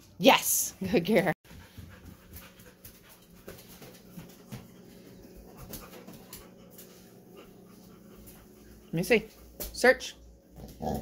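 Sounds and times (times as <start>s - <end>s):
dog sniffing and panting: 1.5s - 9.7s.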